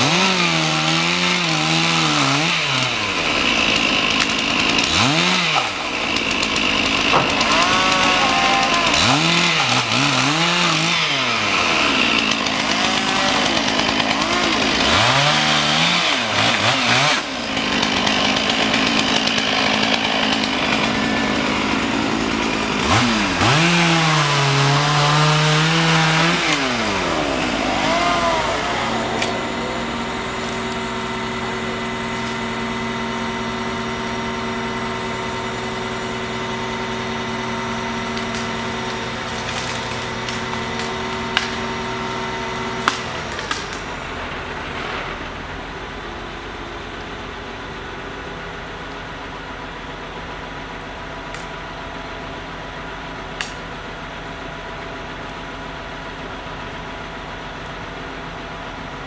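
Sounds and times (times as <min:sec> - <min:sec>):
chainsaw revving while cutting: 0:00.0 - 0:44.2
crane engine humming: 0:05.7 - 0:10.0, 0:26.1 - 0:59.0.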